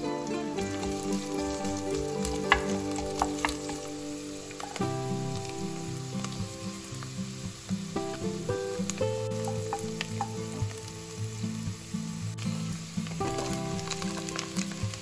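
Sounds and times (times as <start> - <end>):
background music: 0.0 - 15.0
onions sizzling in oil: 0.0 - 15.0
wooden spoon stirring in pot: 0.5 - 5.6, 8.8 - 10.8.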